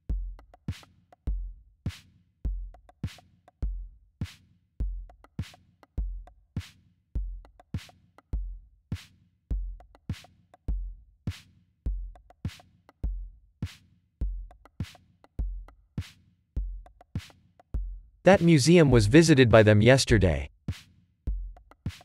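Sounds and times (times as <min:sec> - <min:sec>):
drum machine beat: 0:16.6 - 0:20.5, 0:21.3 - 0:22.0.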